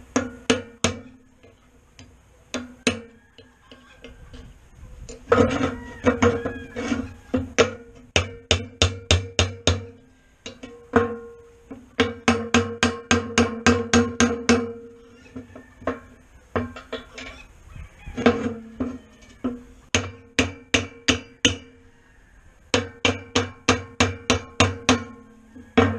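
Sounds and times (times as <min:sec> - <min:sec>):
hammer striking steel punch: 0:00.1 - 0:01.2, 0:07.6 - 0:11.4.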